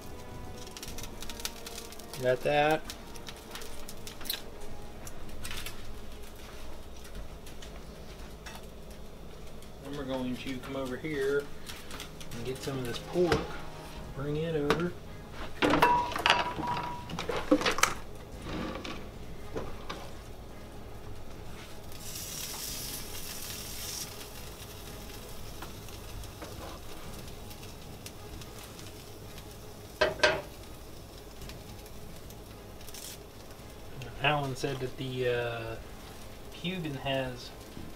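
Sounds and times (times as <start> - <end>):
meat sizzling in pans: 0.0 - 37.9
pans and utensils clattering: 15.6 - 18.0, 30.0 - 30.5.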